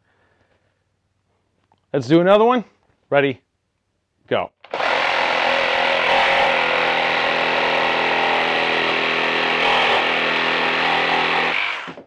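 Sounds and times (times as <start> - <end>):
reciprocating saw cutting timber: 4.7 - 12.0.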